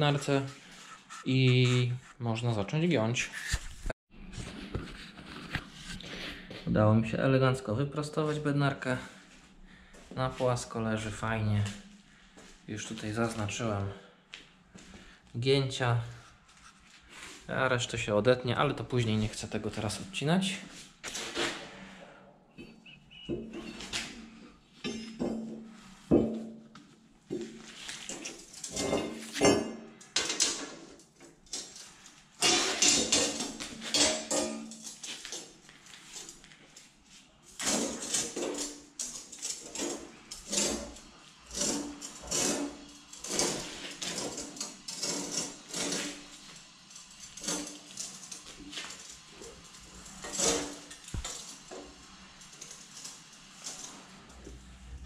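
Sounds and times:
metal strip clanking and scraping: 27.8s - 35.6s, 37.5s - 54.1s.

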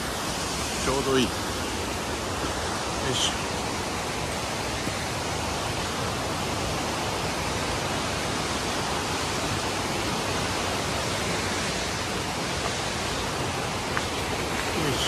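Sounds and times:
rushing stream and waterfall: 0.0s - 15.0s.

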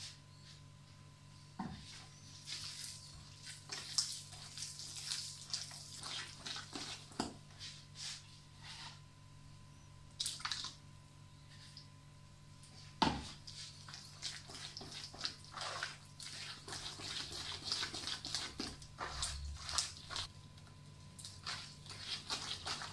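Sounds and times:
faint steady hum: 0.0s - 22.9s
hand mixing wet paste: 1.8s - 9.0s, 12.6s - 22.9s.

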